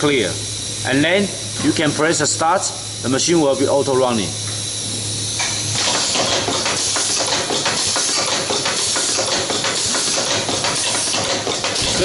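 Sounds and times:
steady air hiss: 0.0 - 12.0
machine clattering clicks: 5.8 - 12.0.

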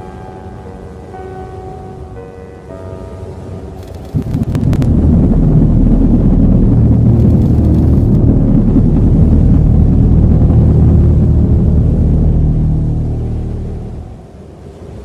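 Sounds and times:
low rumble with droning hum: 3.8 - 15.0.

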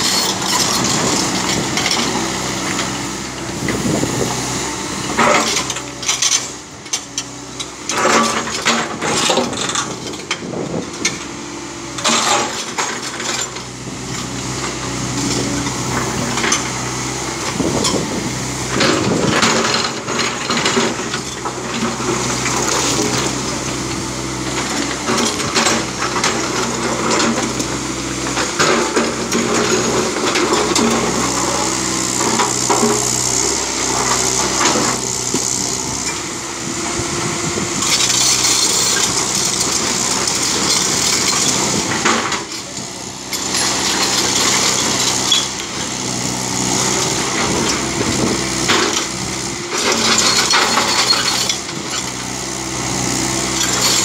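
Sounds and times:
excavator bucket scraping rock: 0.0 - 4.4, 17.4 - 54.0
diesel engine running under load: 0.0 - 54.0.

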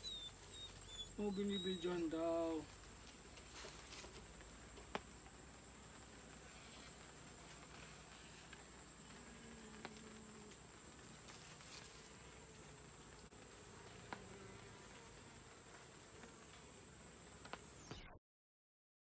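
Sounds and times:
bees buzzing: 0.0 - 17.9.

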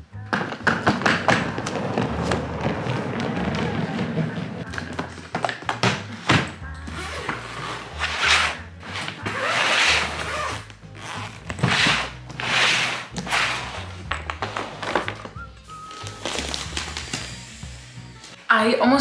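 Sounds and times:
faint background music: 0.0 - 19.0
suitcase zipper pulls: 1.4 - 4.6, 6.8 - 15.1.

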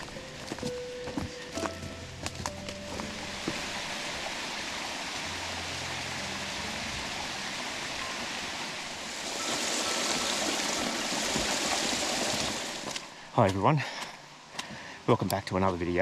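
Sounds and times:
stream water rushing: 2.0 - 14.5.

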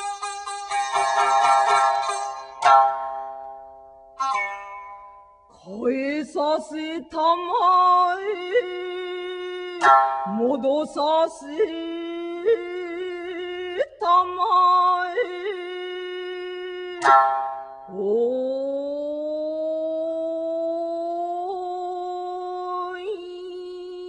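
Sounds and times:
plucked string strike: 0.0 - 5.4, 9.8 - 10.6, 17.0 - 17.9.

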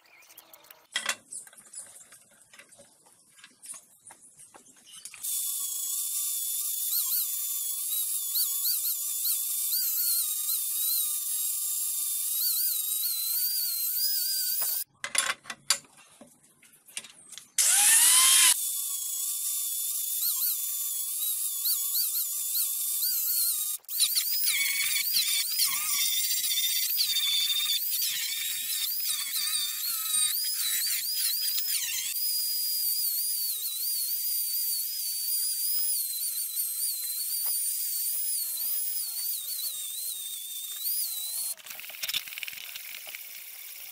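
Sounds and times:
angle grinder whining on metal: 5.2 - 14.8, 17.6 - 42.1.

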